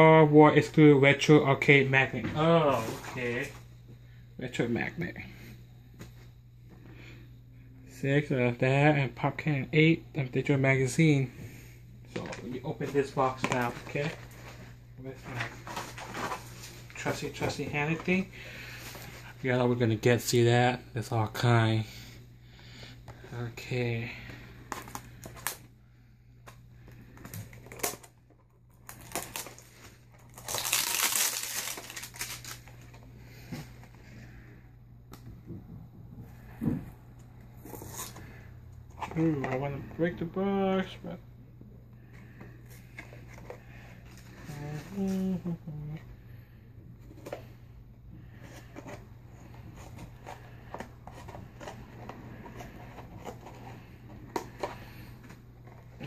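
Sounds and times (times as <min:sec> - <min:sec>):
faint low hum: 0:00.0 - 0:56.0
wrapping crinkling and tearing: 0:27.1 - 0:33.1.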